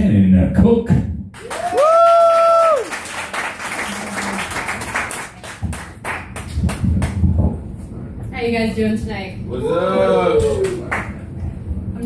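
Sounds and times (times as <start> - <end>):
person whooping: 1.4 - 2.9
audience applauding: 1.4 - 7.2, 10.4 - 11.2.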